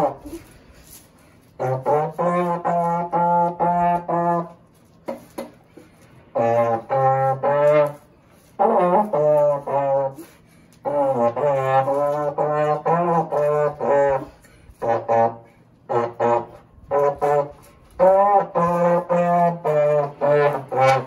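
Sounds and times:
slide trombone playing short phrases: 0.0s - 0.4s, 1.6s - 4.6s, 6.3s - 21.0s.

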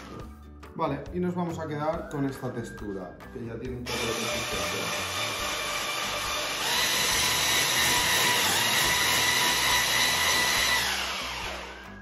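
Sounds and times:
hand blender motor whine: 3.9s - 12.0s.

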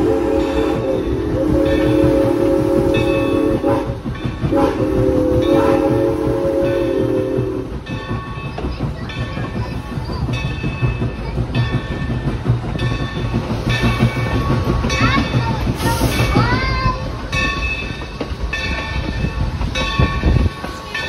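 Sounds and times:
steam locomotive chime whistle: 0.0s - 7.7s
locomotive running rumble: 0.0s - 21.0s.

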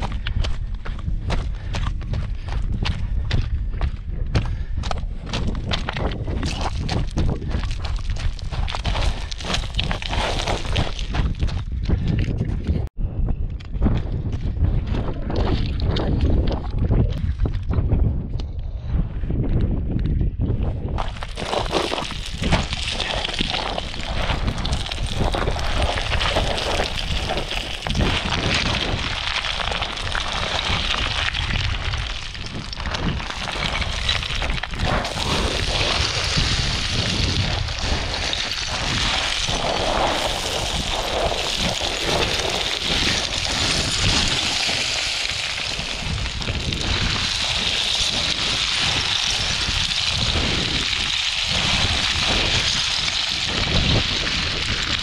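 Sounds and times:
footsteps crunching on scree: 0.0s - 17.3s, 20.9s - 55.0s
wind rumble on microphone: 0.0s - 55.0s
stones clattering underfoot: 4.4s - 12.6s, 21.0s - 55.0s.

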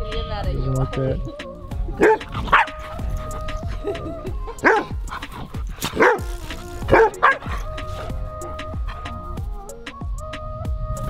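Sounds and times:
background music: 0.0s - 11.0s
dog barking: 2.0s - 9.2s.

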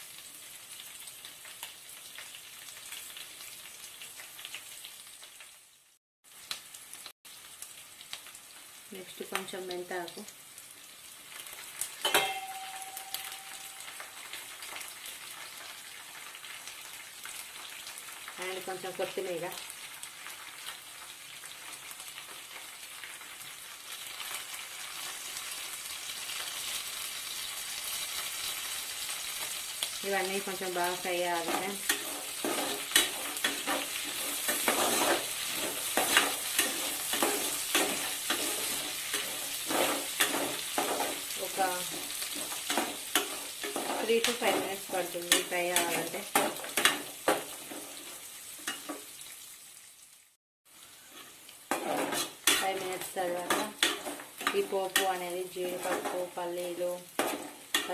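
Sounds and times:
food sizzling in oil: 0.0s - 57.9s
ladle clanging on pot: 12.0s - 13.7s
spatula scraping a metal pot: 31.4s - 41.2s, 51.1s - 52.8s.

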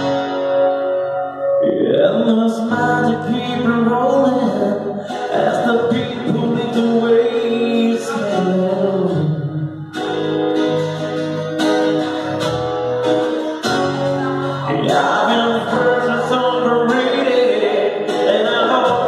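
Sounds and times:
acoustic guitar strumming: 0.0s - 19.0s
man singing: 1.6s - 9.9s, 14.5s - 19.0s.

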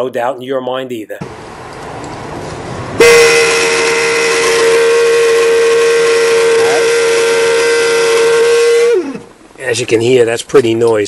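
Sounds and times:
blower motor rushing air: 1.2s - 9.5s
loud whistling squeal: 3.0s - 9.3s.

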